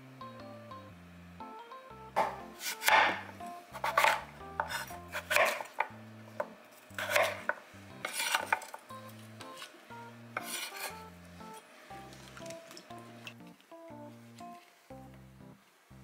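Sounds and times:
soft background music: 0:00.0 - 0:16.0
knife chopping on cutting board: 0:02.2 - 0:09.8, 0:10.4 - 0:11.6.

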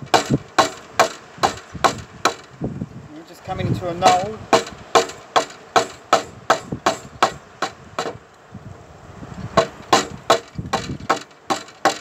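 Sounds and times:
chisel striking wood: 0:00.1 - 0:02.4, 0:04.0 - 0:08.2, 0:09.6 - 0:12.0.

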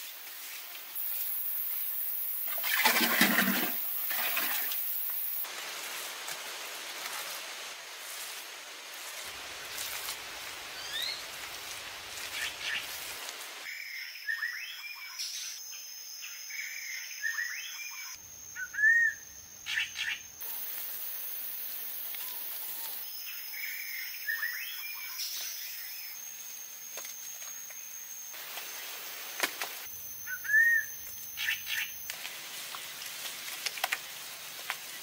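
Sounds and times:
high insect whine: 0:00.3 - 0:05.5, 0:15.6 - 0:35.0.

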